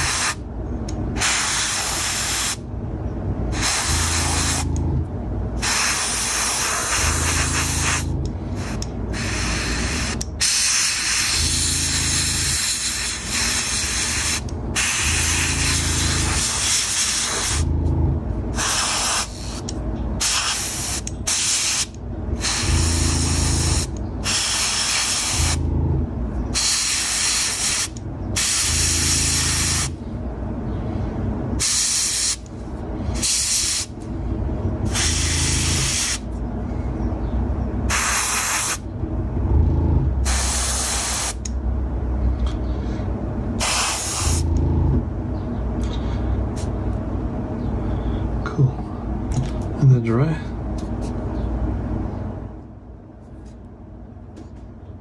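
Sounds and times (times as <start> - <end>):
airbrush spraying bursts: 0.0 - 0.4, 1.2 - 2.6, 3.5 - 4.8, 5.6 - 17.7, 18.6 - 25.7, 26.6 - 30.0, 31.6 - 32.4, 33.2 - 33.9, 34.9 - 36.3, 37.9 - 38.8, 40.2 - 41.5, 43.6 - 44.5.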